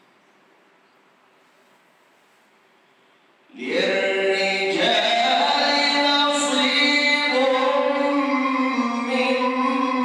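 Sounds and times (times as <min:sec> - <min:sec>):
man chanting melodically: 0:03.5 - 0:10.0.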